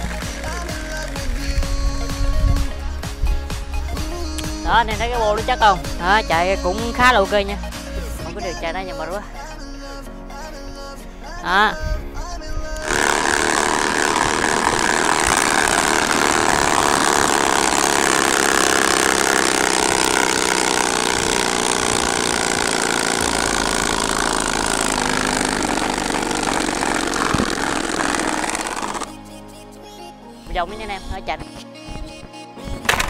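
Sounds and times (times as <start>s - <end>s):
bicycle exhaust buzzing: 0.0s - 7.2s, 12.8s - 29.1s.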